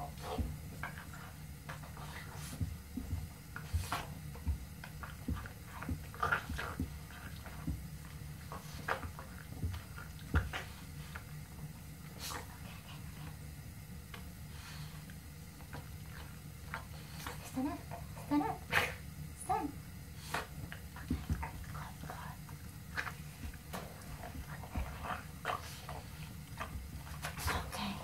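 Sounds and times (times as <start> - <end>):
dog paws thumping on rug: 0.1 - 13.4, 20.2 - 28.0.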